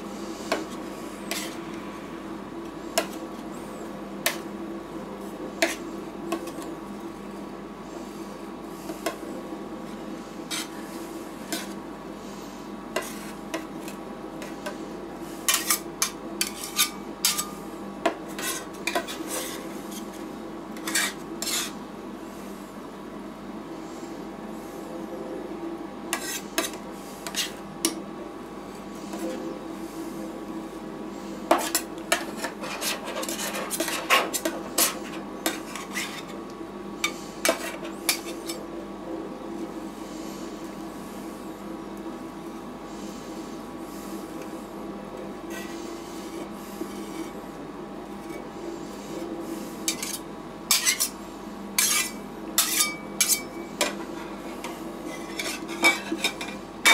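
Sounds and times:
metal spatulas scraping on metal: 0:01.3 - 0:01.6, 0:10.5 - 0:10.8, 0:15.4 - 0:17.6, 0:18.3 - 0:20.1, 0:20.8 - 0:21.8, 0:26.1 - 0:27.6, 0:31.5 - 0:36.4, 0:37.0 - 0:38.6, 0:49.8 - 0:51.2, 0:51.8 - 0:56.9.

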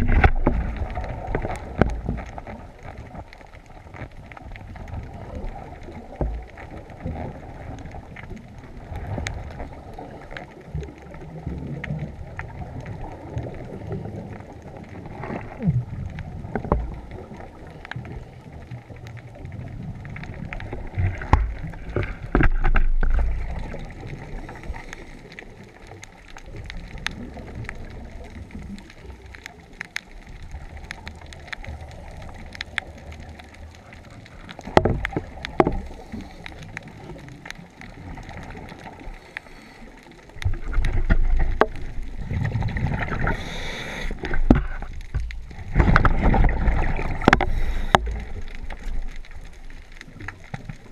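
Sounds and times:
regulator bubbles rumbling underwater: 0:00.0 - 0:50.9
small clicks and knocks: 0:20.2 - 0:27.8, 0:28.5 - 0:39.5, 0:40.3 - 0:43.4, 0:44.0 - 0:50.9.

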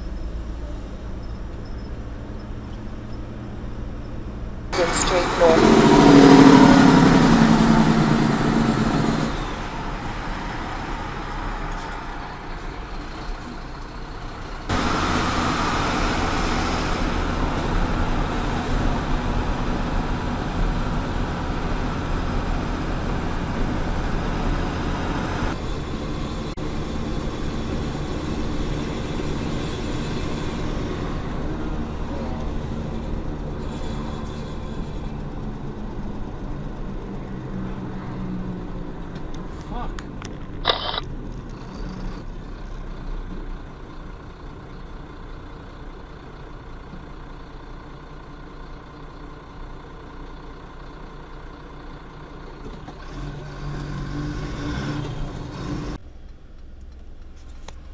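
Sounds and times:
truck engine and road noise: 0:00.0 - 0:57.9
loud pitched sound: 0:04.8 - 0:09.6.

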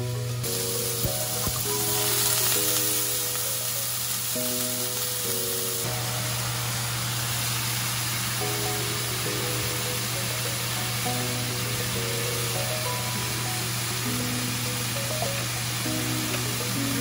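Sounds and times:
vegetables sizzling in frying pan: 0:00.0 - 0:17.0.

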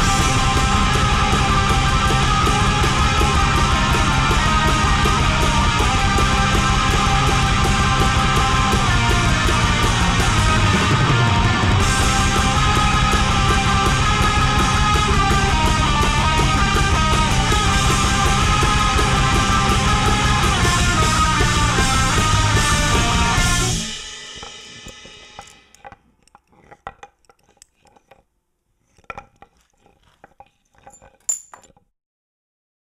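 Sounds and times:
black metal band playing: 0:00.0 - 0:25.7.

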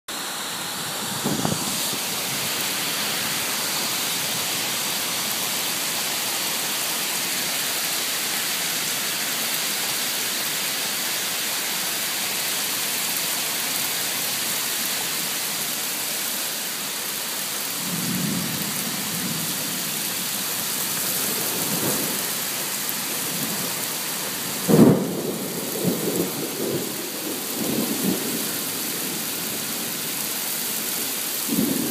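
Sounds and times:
rain on a shingled roof: 0:00.1 - 0:31.9
thunder rumbling: 0:00.9 - 0:04.5, 0:17.8 - 0:19.9, 0:24.6 - 0:29.1.

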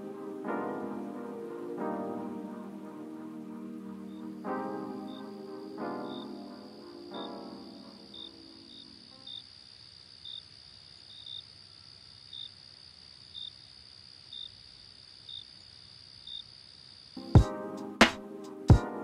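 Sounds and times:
sustained music notes: 0:00.0 - 0:09.0, 0:17.2 - 0:19.0
crickets chirping: 0:05.1 - 0:17.2.

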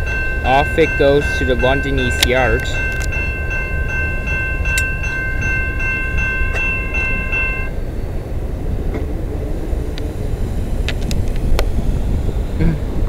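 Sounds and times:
level crossing warning bell: 0:00.0 - 0:08.8
freight train rumbling: 0:00.0 - 0:13.0.

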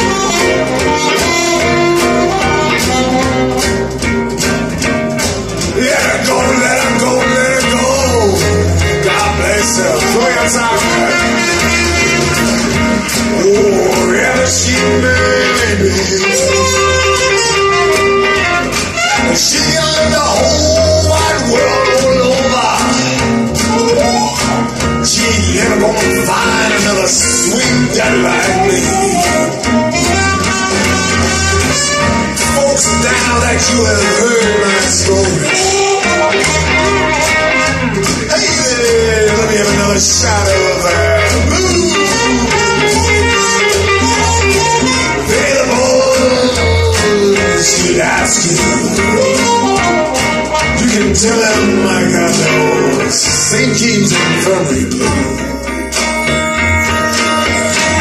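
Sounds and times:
song with vocals over loudspeakers: 0:00.0 - 0:58.0.

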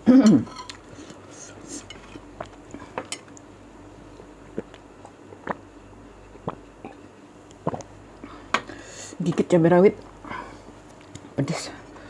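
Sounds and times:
glass and tableware clinking: 0:00.2 - 0:00.8.

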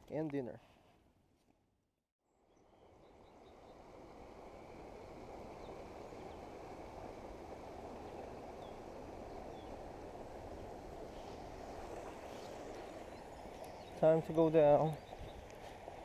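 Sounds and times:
flowing canal water: 0:02.6 - 0:16.0.

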